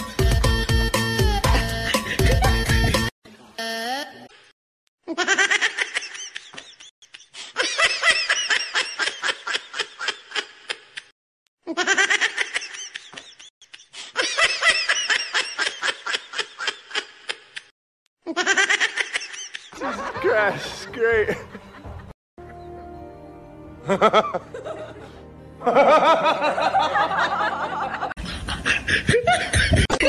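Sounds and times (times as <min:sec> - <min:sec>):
high-pitched giggling laughter: 0:05.1 - 0:11.1, 0:11.7 - 0:20.2, 0:23.9 - 0:30.0.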